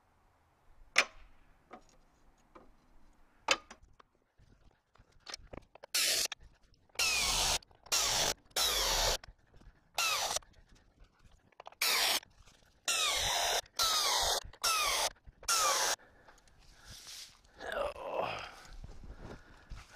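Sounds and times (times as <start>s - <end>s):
impact wrench bursts: 7.0s - 9.2s, 10.0s - 10.4s, 11.8s - 12.2s, 12.9s - 16.0s.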